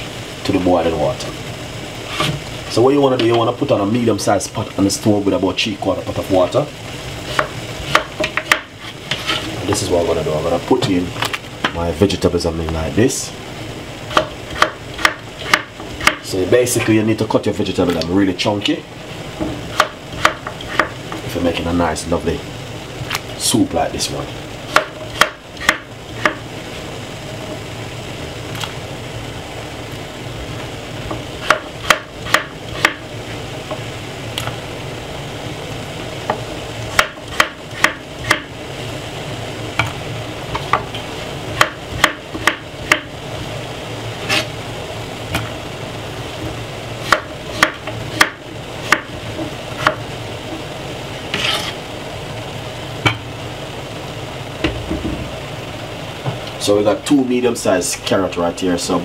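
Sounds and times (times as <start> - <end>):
steady low hum: 0.0 - 59.0
knife chopping on wooden board: 7.3 - 9.4, 14.1 - 16.2, 19.4 - 21.0, 24.7 - 26.4, 31.4 - 33.0, 36.9 - 38.5, 41.6 - 43.1, 47.0 - 49.1, 49.8 - 50.0.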